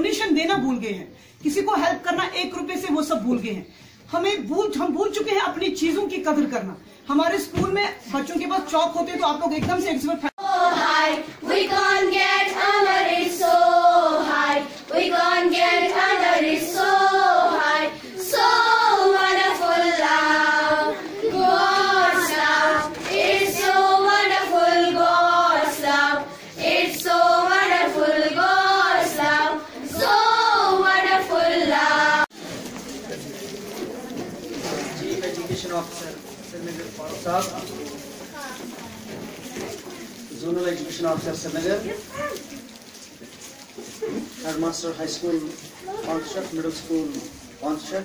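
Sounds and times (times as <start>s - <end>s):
girls singing in unison: 10.4s - 32.3s.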